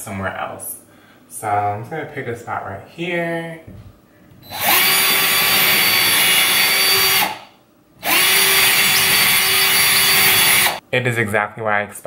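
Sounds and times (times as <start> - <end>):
power drill boring into drywall: 4.5 - 10.8.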